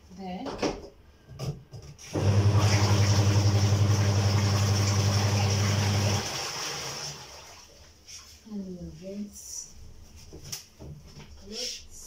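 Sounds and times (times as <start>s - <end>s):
spin-dryer motor humming: 2.1s - 7.2s.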